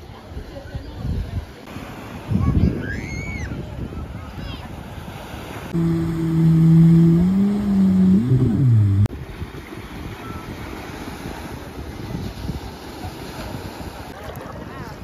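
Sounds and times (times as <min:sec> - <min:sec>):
wind buffeting microphone: 0:02.2 - 0:12.8
loud pitched hum: 0:05.8 - 0:09.1.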